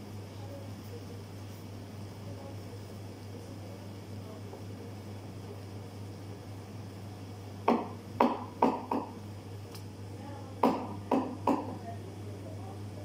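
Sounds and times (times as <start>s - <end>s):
espresso machine humming: 0.0s - 13.0s
sharp knocks: 7.6s - 9.2s, 10.6s - 11.8s.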